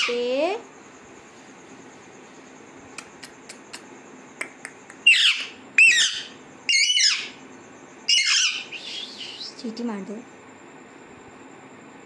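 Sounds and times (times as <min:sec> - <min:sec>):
parakeet squawking: 0:05.0 - 0:07.4, 0:08.1 - 0:09.6.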